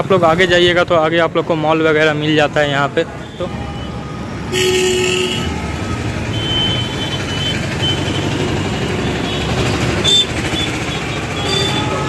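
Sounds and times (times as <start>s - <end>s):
traffic rumble: 0.0s - 12.0s
vehicle horn: 3.3s - 7.1s, 9.1s - 12.0s.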